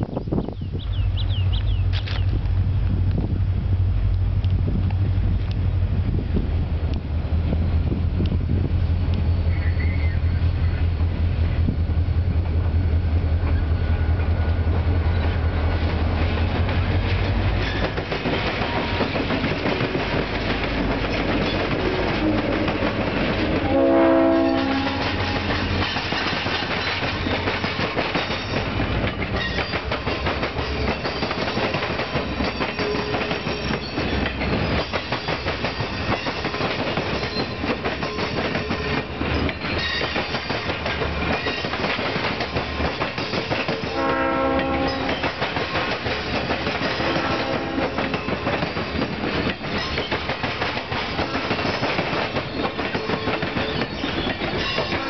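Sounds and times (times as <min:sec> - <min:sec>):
train wheels on rails: 0:00.2 - 0:55.0
locomotive horn: 0:21.7 - 0:25.6, 0:43.8 - 0:45.3, 0:47.0 - 0:48.2
clicking over rail joints: 0:24.8 - 0:44.0, 0:44.6 - 0:55.0.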